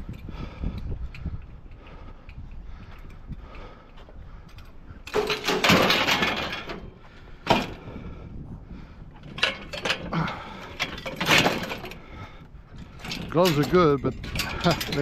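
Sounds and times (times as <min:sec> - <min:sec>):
metal clanks and knocks: 0:04.5 - 0:07.9, 0:09.2 - 0:12.1, 0:12.8 - 0:15.0
scrap metal clattering: 0:05.1 - 0:07.8, 0:13.0 - 0:15.0.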